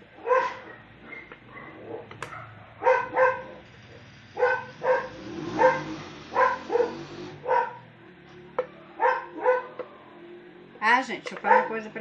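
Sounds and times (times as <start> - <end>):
dog barking: 0.2 - 3.6, 4.4 - 7.9, 8.7 - 10.0, 11.4 - 12.0.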